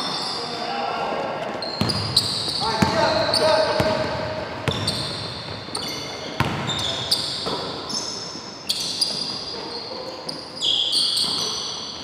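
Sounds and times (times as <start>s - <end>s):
sneakers squeaking on floor: 0.0s - 0.7s, 1.4s - 12.0s
basketball bouncing: 1.8s - 7.7s.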